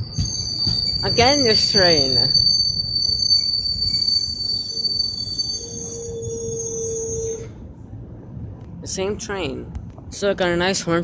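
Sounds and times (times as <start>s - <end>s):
high-pitched squeal: 0.0s - 7.6s
train rumbling past: 0.0s - 11.0s.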